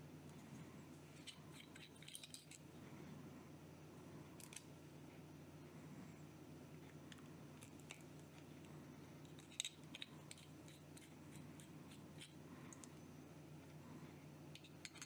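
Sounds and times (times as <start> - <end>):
low room hum: 0.0 - 15.0
small clicks of pen parts: 4.4 - 4.7, 7.1 - 13.0.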